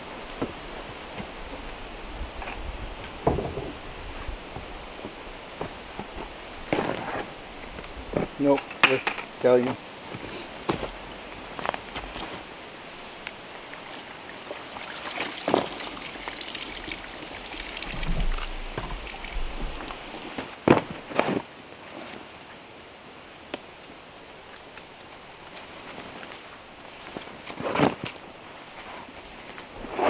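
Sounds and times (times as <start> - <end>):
water trickling into a bucket: 13.5 - 20.6.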